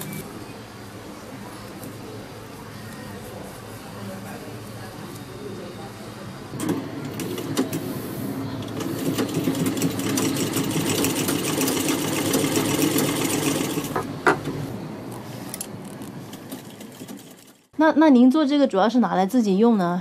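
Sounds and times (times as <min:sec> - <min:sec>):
sewing machine stitching: 0:08.6 - 0:14.0.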